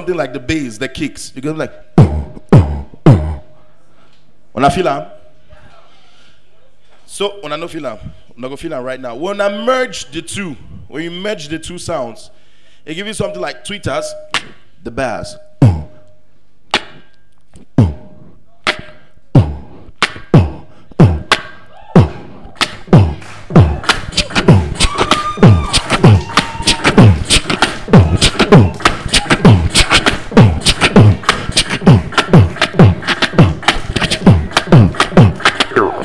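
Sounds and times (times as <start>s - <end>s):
beatboxing into microphone: 0.0s - 3.6s, 12.9s - 36.0s.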